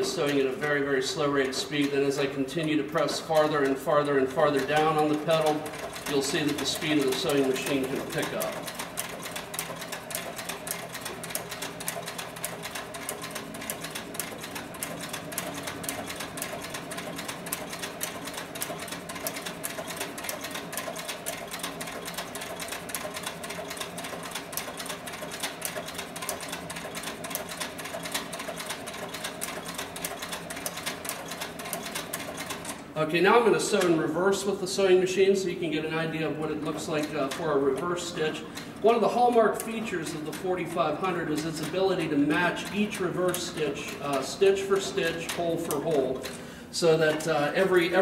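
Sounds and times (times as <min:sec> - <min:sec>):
sewing machine needle clatter: 0:00.0 - 0:32.9, 0:36.6 - 0:46.5
mechanical motor hum: 0:00.0 - 0:48.0.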